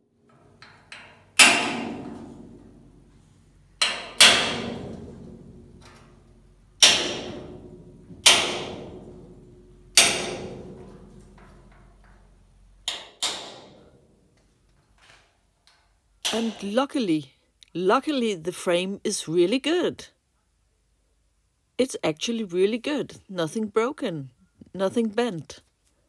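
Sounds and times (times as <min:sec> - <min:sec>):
hammer striking metal punch: 0:00.9 - 0:03.2, 0:03.8 - 0:11.8, 0:12.9 - 0:14.0.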